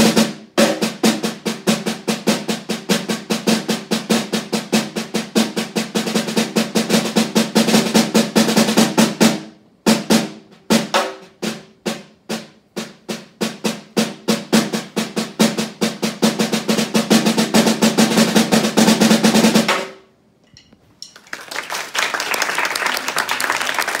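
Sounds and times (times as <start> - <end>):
snare drum roll: 0.0 - 20.1
audience applause: 21.2 - 24.0.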